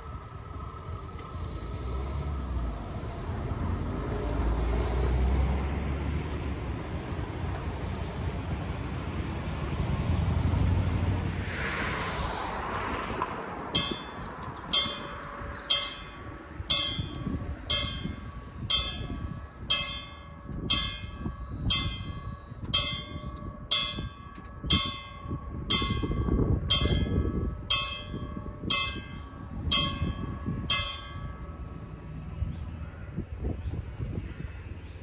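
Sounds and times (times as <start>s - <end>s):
level-crossing warning bell: 13.8s - 32.3s.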